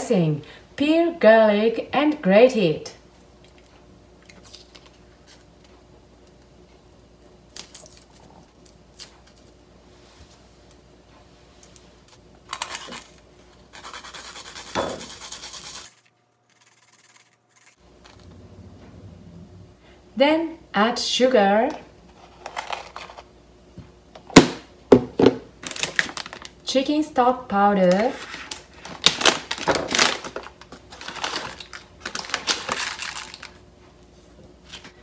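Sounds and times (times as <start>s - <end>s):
garlic being peeled: 12.5s - 17.8s
garlic grated on grater: 13.7s - 17.8s.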